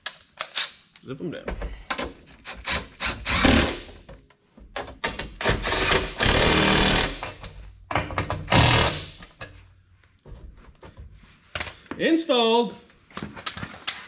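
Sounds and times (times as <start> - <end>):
impact driver hammering bolts: 4.8 - 9.3.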